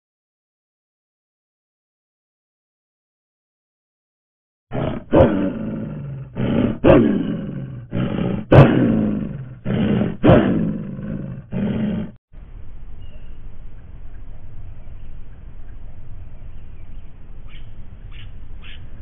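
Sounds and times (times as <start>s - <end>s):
large animal deep calls: 4.7s - 12.2s.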